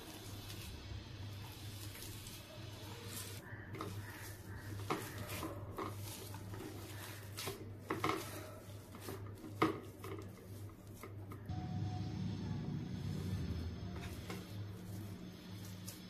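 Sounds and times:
hand mashing food on a plate: 3.1 - 11.5.

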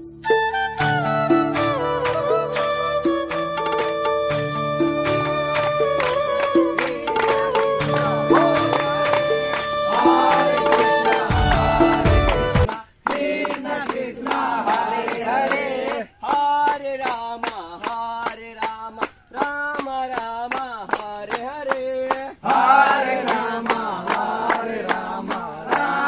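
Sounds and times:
hands clapping in rhythm: 0.8 - 26.0
men chanting in unison: 7.9 - 11.9, 12.7 - 26.0.

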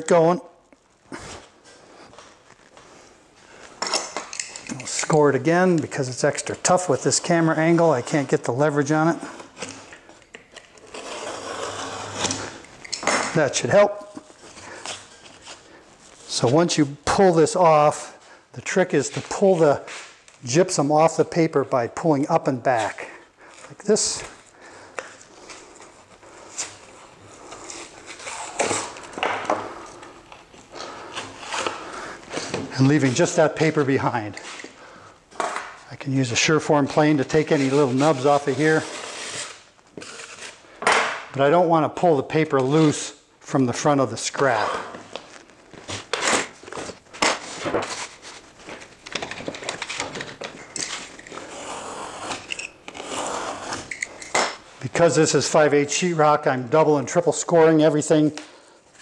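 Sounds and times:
drywall paper tearing: 10.8 - 12.6, 26.4 - 29.1, 36.7 - 40.7, 49.5 - 54.1.

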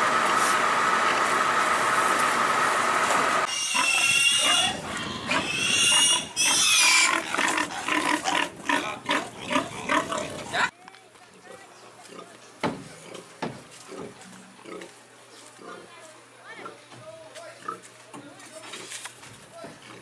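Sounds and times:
pigs squealing: 3.4 - 10.7
pigs grunting: 3.5 - 10.7.

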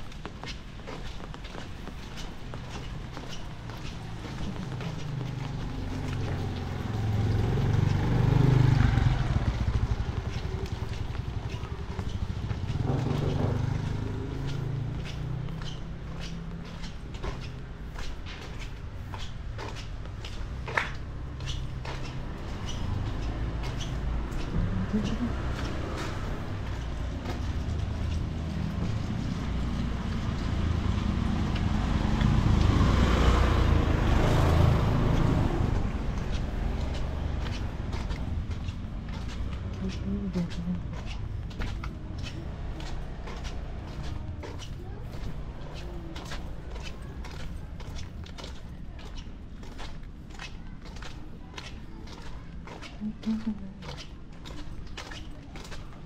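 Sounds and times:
motorcycle engine passing by: 2.8 - 17.5, 21.3 - 47.9.

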